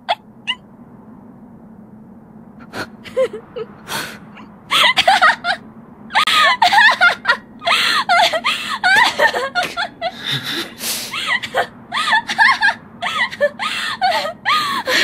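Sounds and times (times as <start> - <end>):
low steady hum: 0.0 - 15.0
woman laughing: 3.0 - 3.7, 4.7 - 5.6, 6.2 - 15.0.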